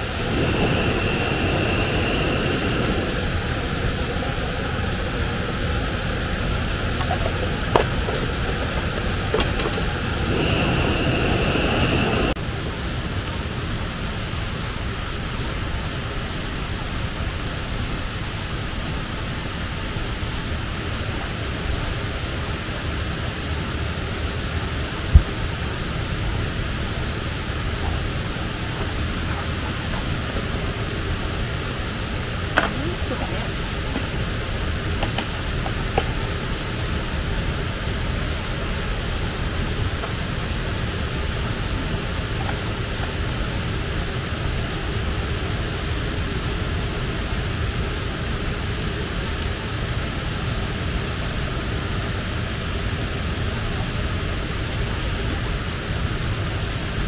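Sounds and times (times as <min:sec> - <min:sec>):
rushing water: 0:00.0 - 0:57.0.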